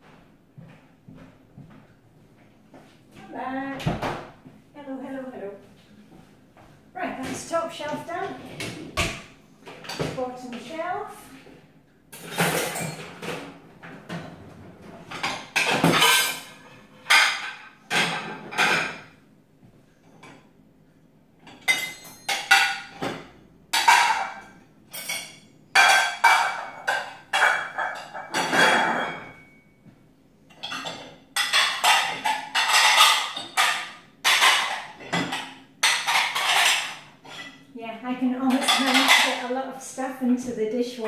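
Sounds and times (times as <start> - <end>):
ceramic dishes clinking: 12.2 - 13.3, 15.1 - 19.1, 21.4 - 29.6, 30.5 - 37.7, 38.5 - 39.4.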